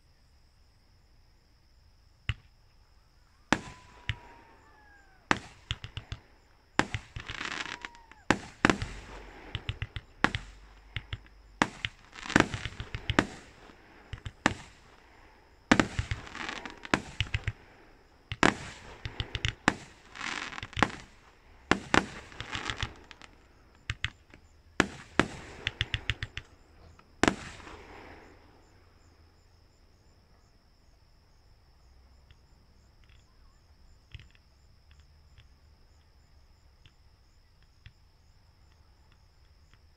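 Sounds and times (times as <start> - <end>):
insects chirring: 0.0 - 39.9
falling firework whistles: 3.2 - 29.2
fireworks bangs and crackling: 3.4 - 28.8.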